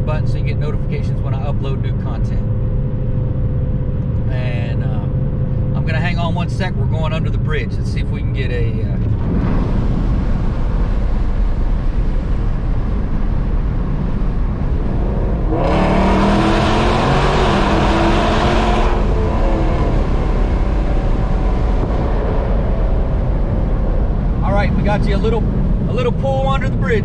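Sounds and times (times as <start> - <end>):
road and wind rumble: 0.0 - 27.0
loud exhaust rising in pitch: 9.2 - 25.9.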